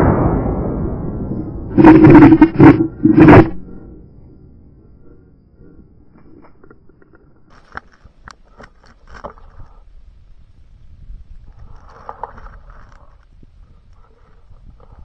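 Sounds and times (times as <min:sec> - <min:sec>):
scraping and rustling: 0:01.8 - 0:03.6, 0:11.5 - 0:13.3.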